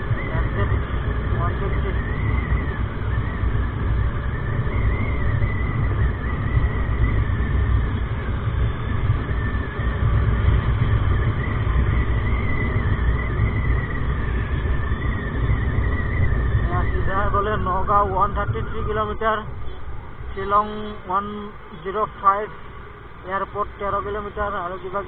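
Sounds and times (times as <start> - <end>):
high wavering whine: 0.0 - 25.0
wind rush on microphone: 0.0 - 25.0.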